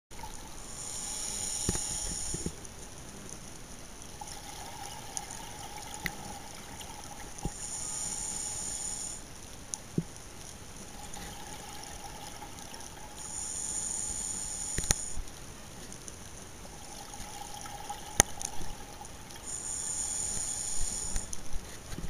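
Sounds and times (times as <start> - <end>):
diver breathing through regulator: 0.5 - 2.6, 7.4 - 9.2, 13.2 - 15.2, 19.4 - 21.3
bubbles rushing and gurgling: 10.9 - 13.3, 16.7 - 19.5
faint sharp clicks: 14.7 - 16.2, 20.3 - 22.0.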